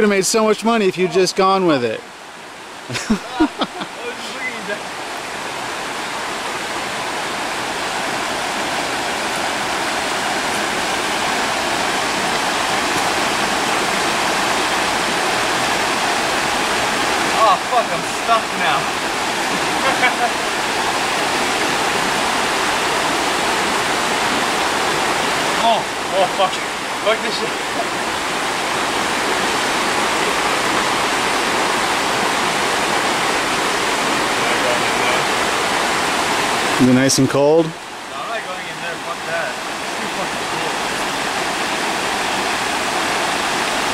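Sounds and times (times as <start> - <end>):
river rushing over rocks: 0.0 - 43.9.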